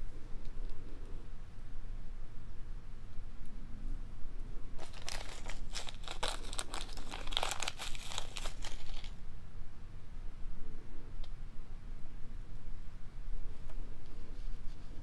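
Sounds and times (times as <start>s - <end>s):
plastic bag crinkling: 4.8s - 9.2s.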